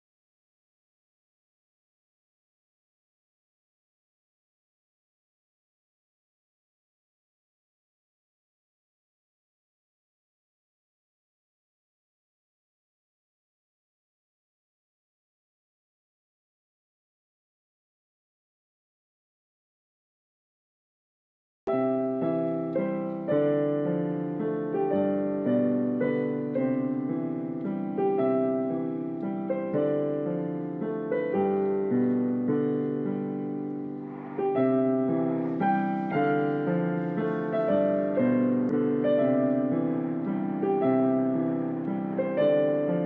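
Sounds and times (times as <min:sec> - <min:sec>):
gentle piano music: 0:21.7 - 0:43.0.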